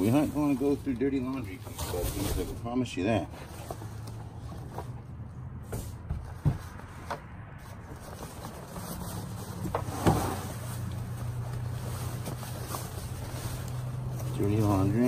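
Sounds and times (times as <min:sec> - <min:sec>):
laundry bag rustling: 0:07.7 - 0:15.0.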